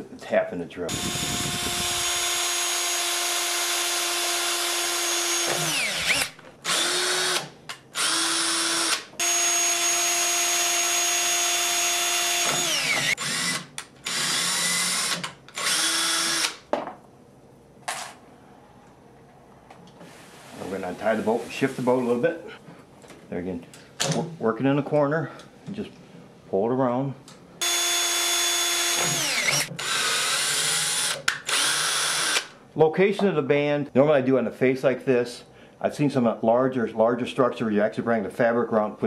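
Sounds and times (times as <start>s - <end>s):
cordless drill whining: 0.9s - 16.6s, 27.6s - 32.5s.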